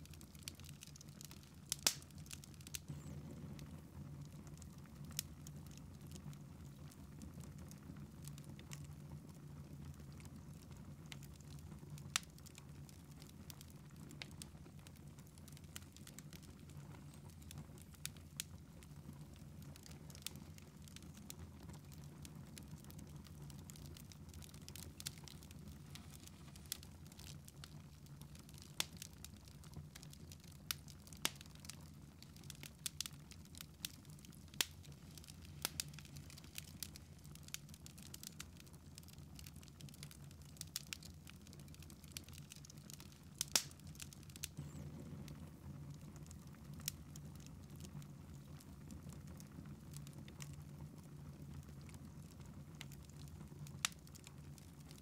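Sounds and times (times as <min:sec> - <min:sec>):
sharp pops of fire: 0:00.0 - 0:06.2, 0:11.1 - 0:50.6
wood fire crackling: 0:00.0 - 0:55.0
low steady hum: 0:01.8 - 0:06.8.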